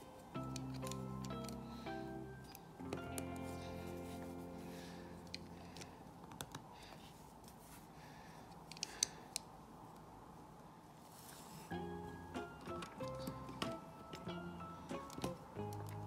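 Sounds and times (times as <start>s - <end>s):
background music: 0.0s - 6.0s, 11.7s - 16.0s.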